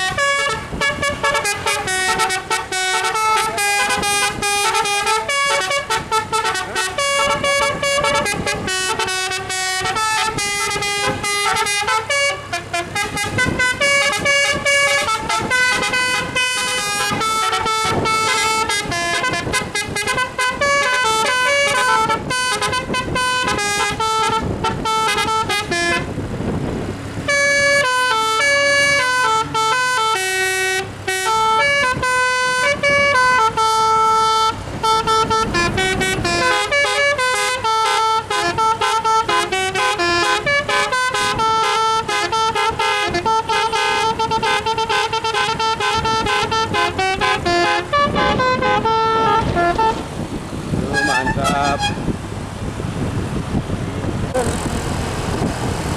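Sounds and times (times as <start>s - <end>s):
multi-note horn melody: 0.0s - 26.1s, 27.3s - 50.0s, 50.8s - 52.1s
rushing noise: 32.7s - 37.8s, 47.8s - 55.9s.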